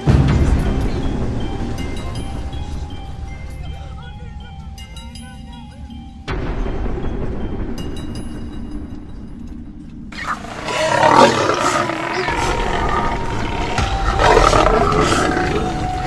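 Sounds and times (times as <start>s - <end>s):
low rumble: 0.0s - 16.0s
animals roaring and growling: 10.1s - 16.0s.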